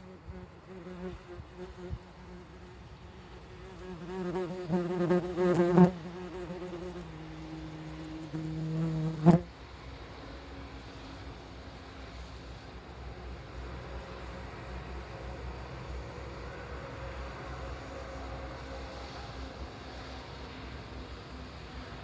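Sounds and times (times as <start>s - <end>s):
wasp wings buzzing: 0.0s - 9.5s.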